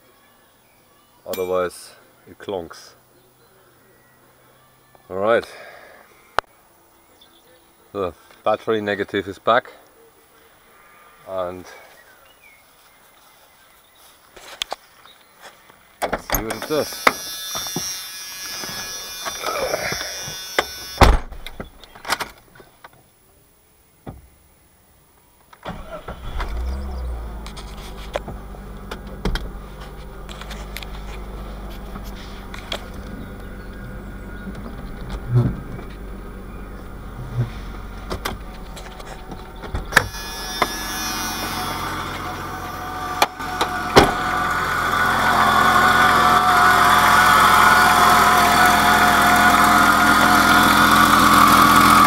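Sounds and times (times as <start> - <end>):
car engine starting and idling: 25.6 - 52.0
door and seat handling noises: 34.4 - 40.7, 43.2 - 44.2.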